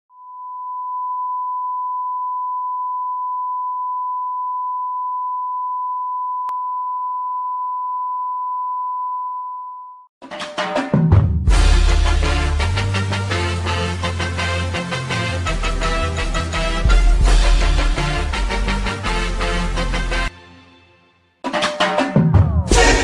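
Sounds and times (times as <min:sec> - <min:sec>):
steady test tone beep: 0:00.2 - 0:10.1
music: 0:10.2 - 0:23.0.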